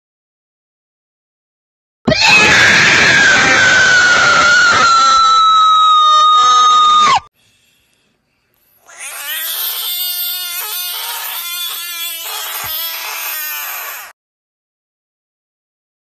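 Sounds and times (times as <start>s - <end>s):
frog screaming: 2.1s - 7.3s, 8.8s - 14.2s
second frog screaming: 2.1s - 7.3s, 8.8s - 14.2s.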